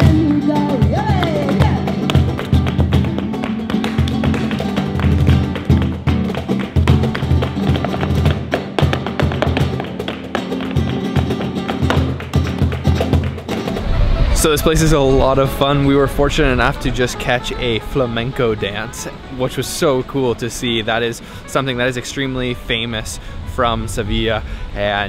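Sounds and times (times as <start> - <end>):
person singing: 0.0 - 2.4
flamenco footwork stamping on wood: 0.0 - 13.8
cajon drumming: 0.0 - 15.6
acoustic guitar: 0.0 - 17.8.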